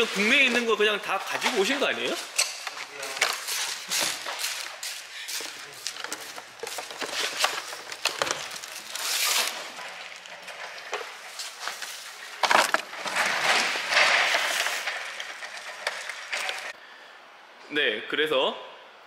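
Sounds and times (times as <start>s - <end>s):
boxes clattering: 0.0s - 16.8s
cardboard crackling and rustling: 3.0s - 16.8s.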